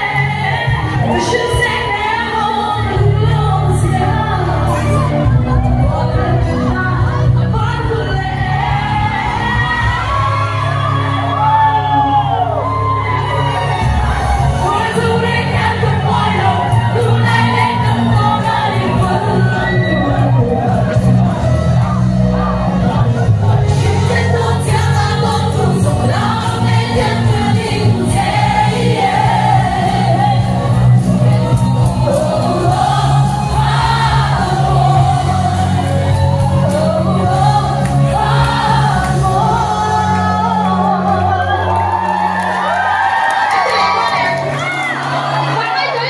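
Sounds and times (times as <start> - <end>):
woman singing into a microphone: 0.0 - 10.7, 14.5 - 20.9, 23.5 - 42.0
instrumental accompaniment with bass: 0.0 - 45.6
crowd singing along: 0.0 - 46.0.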